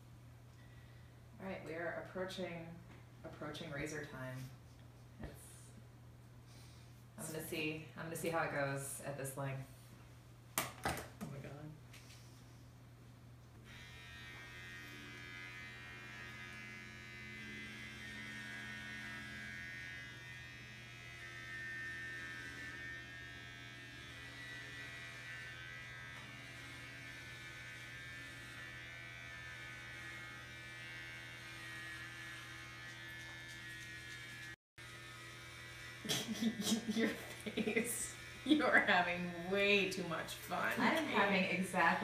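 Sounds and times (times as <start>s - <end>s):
electric hair clippers buzzing: 13.5s - 42.0s.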